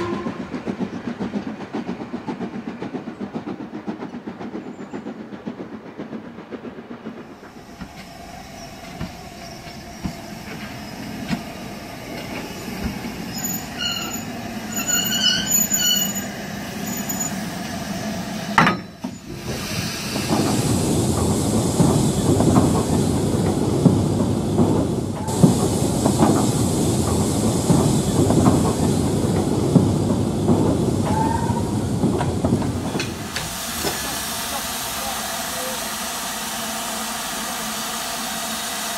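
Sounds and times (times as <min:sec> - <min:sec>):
model train wheels rumbling on track: 0:00.0 - 0:38.9
steam locomotive chuffing: 0:00.0 - 0:38.9
high wheel squeals: 0:12.2 - 0:17.6.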